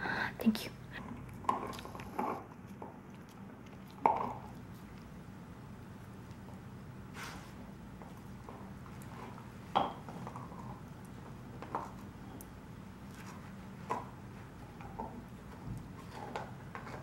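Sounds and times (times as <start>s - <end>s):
dog licking and chewing: 1.0s - 6.7s.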